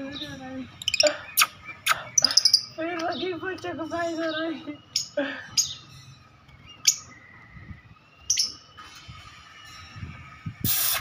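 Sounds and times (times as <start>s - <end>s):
bird chirping high-pitched: 0.0s - 8.8s
harsh noisy burst: 10.6s - 11.0s.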